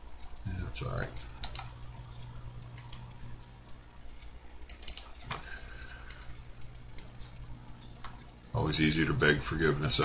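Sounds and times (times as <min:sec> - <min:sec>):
low steady hum: 0:00.0 - 0:10.0
computer mouse clicking: 0:01.0 - 0:03.2, 0:04.2 - 0:05.4, 0:06.0 - 0:08.3.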